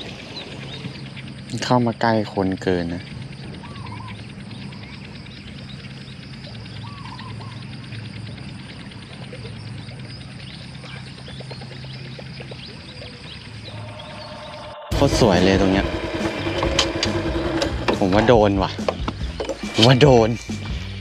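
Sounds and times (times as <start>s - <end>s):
chorus of small calling animals: 0.0s - 19.0s
steady low hum: 0.0s - 21.0s
warbling chirps: 12.2s - 21.0s.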